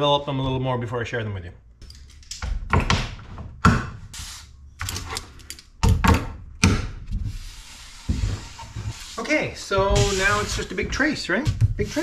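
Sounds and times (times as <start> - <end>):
wood and metal knocks and scrapes: 8.0 - 12.0.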